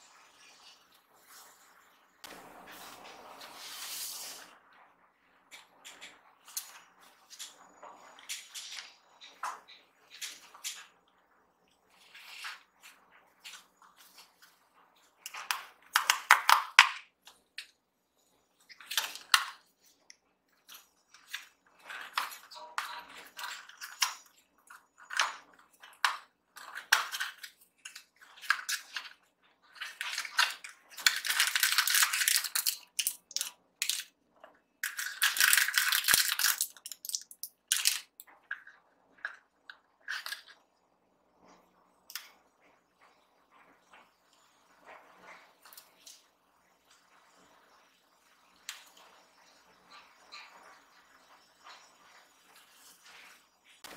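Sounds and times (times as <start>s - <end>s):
wrapper crinkling: 34.8s - 38.1s.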